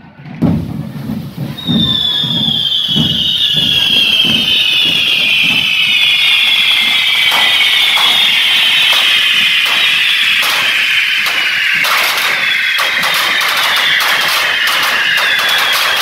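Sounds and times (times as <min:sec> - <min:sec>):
low beat: 0:00.4 - 0:15.3
fireworks hiss-whistle: 0:00.4 - 0:16.0
sharp cracks: 0:06.7 - 0:16.0.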